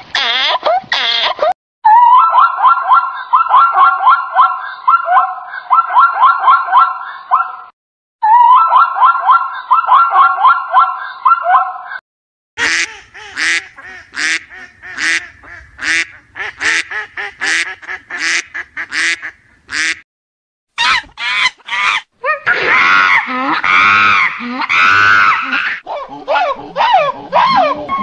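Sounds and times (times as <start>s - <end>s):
ducks quacking: 12.6s - 20.0s.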